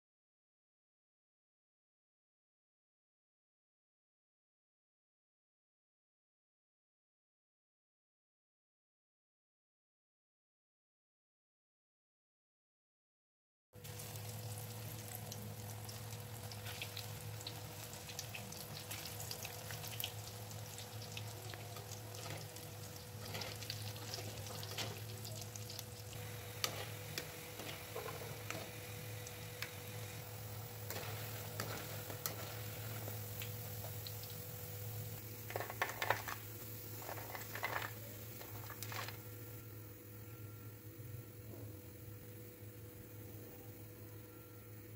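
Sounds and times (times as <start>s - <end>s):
food deep-frying in oil: 13.8s - 41.1s
low steady hum: 13.8s - 44.9s.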